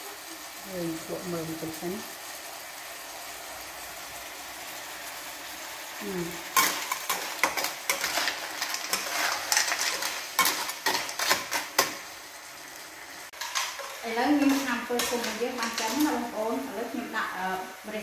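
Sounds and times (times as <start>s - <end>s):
food sizzling in a frying pan: 0.0s - 18.0s
metal spatula scraping pan: 6.5s - 12.1s, 13.3s - 16.6s.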